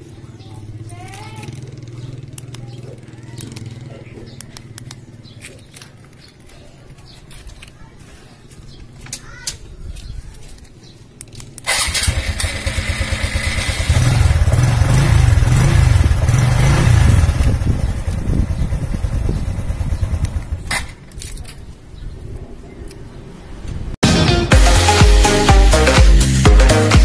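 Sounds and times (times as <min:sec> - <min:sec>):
motorcycle engine running: 0:00.1 - 0:05.5, 0:11.7 - 0:20.7.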